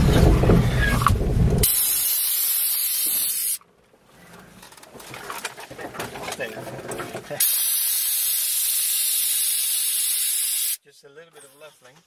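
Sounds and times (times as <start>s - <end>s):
van engine rumbling: 0.0s - 2.1s.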